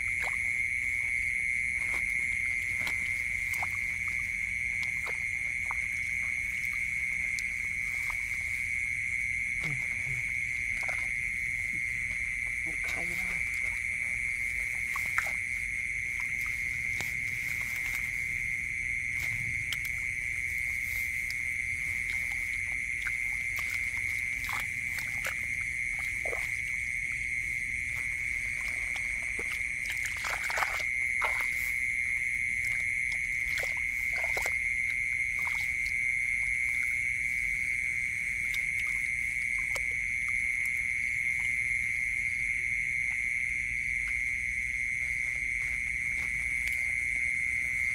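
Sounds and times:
night chorus of calling animals: 0:00.0 - 0:47.9
hands splashing in muddy water: 0:09.4 - 0:41.5.

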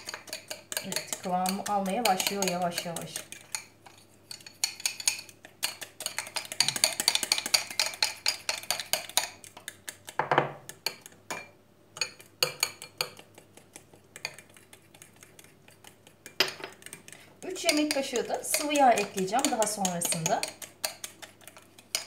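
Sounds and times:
metal spoon clinking in bowl: 0:00.0 - 0:03.7, 0:17.6 - 0:21.2
spoon scraping bowl: 0:00.0 - 0:11.1, 0:12.0 - 0:22.0.

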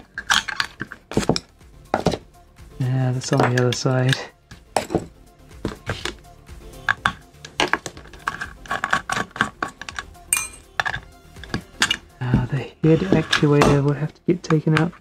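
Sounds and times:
metal clinking on metal: 0:09.8 - 0:12.1.

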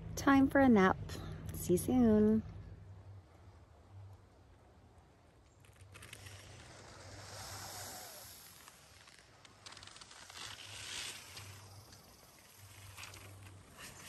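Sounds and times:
low steady hum: 0:00.0 - 0:14.0
faint rustling hiss: 0:05.2 - 0:14.0.

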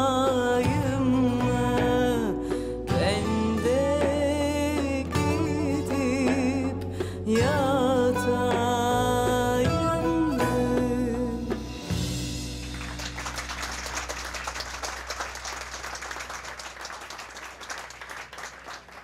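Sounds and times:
audience applause: 0:12.6 - 0:19.0.

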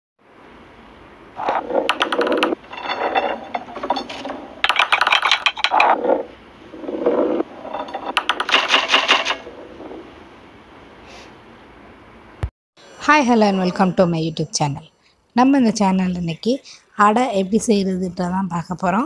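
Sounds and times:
balls rolling and clattering on tracks: 0:01.4 - 0:10.0.

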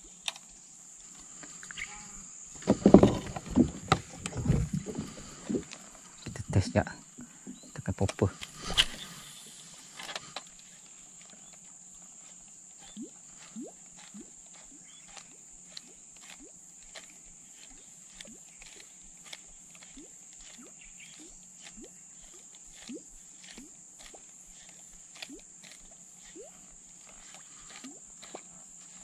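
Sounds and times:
high-pitched insect drone: 0:00.0 - 0:07.6, 0:08.2 - 0:29.0.

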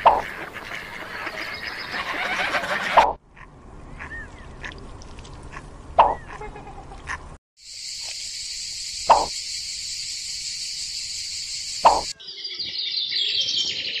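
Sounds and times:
high insect drone: 0:07.6 - 0:12.1
rapid high chirping: 0:07.6 - 0:12.2.

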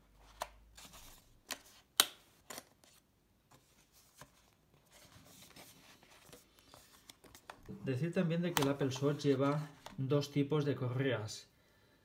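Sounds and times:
card sliding rustle: 0:00.2 - 0:07.6, 0:08.4 - 0:10.0.

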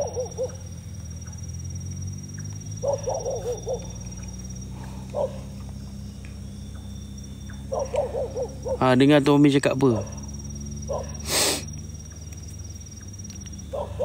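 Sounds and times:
dog barking: 0:00.0 - 0:00.6, 0:02.8 - 0:04.0, 0:05.1 - 0:05.5, 0:07.7 - 0:09.0, 0:10.9 - 0:11.3, 0:13.7 - 0:14.0.

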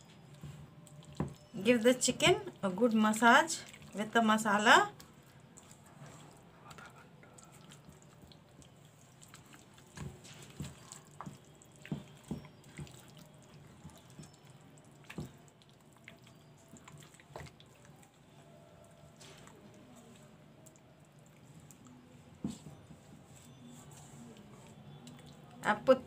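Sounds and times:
hands squelching paste into chicken: 0:05.0 - 0:18.3.

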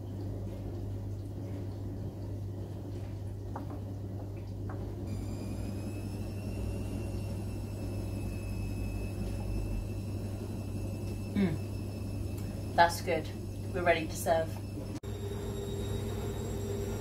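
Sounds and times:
low electrical hum: 0:00.0 - 0:17.0
high-pitched whine: 0:05.1 - 0:17.0.

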